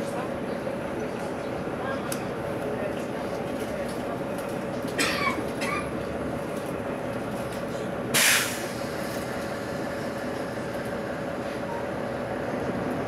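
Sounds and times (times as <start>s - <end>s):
tram running noise: 0.0s - 13.0s
short loud hiss: 8.2s - 8.7s.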